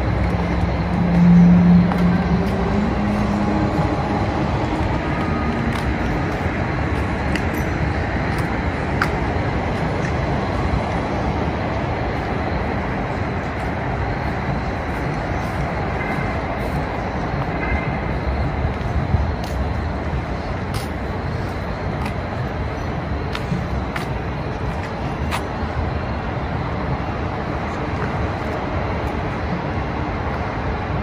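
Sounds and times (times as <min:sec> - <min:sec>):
city traffic rumble: 0:00.0 - 0:31.0.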